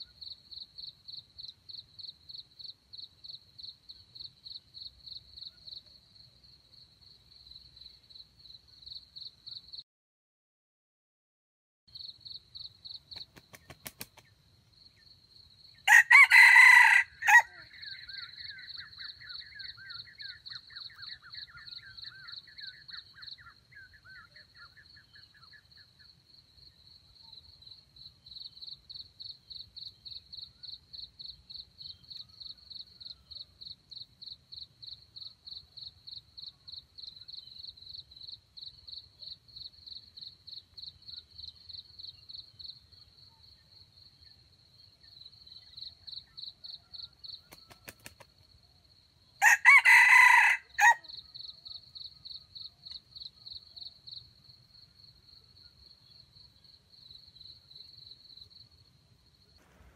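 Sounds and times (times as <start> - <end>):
insect chirping: 0.0 - 9.8, 11.9 - 59.9
rooster crowing: 15.8 - 17.9, 49.4 - 51.1.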